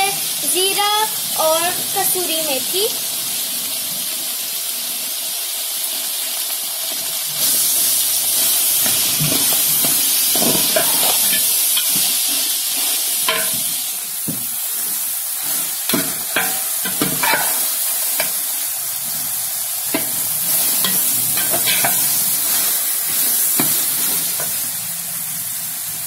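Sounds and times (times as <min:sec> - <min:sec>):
food sizzling: 0:00.0 - 0:26.0
metal spoon scraping a metal pot: 0:09.2 - 0:12.1, 0:15.9 - 0:18.3, 0:20.8 - 0:22.1.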